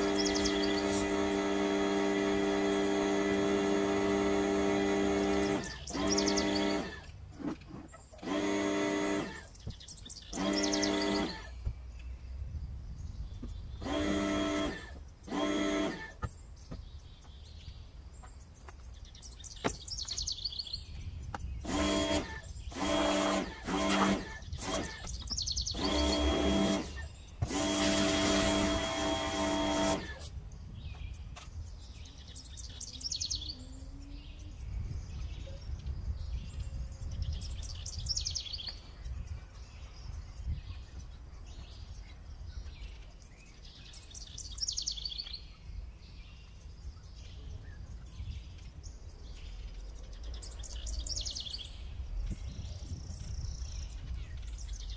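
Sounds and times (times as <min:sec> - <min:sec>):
birds chirping: 0:00.0 - 0:54.9
pressure washer spraying: 0:25.8 - 0:30.3.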